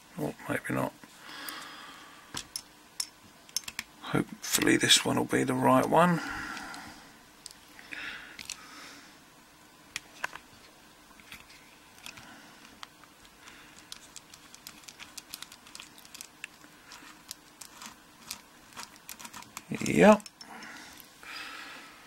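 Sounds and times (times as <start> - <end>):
metallic clicks and scrapes: 13.7 - 21.0.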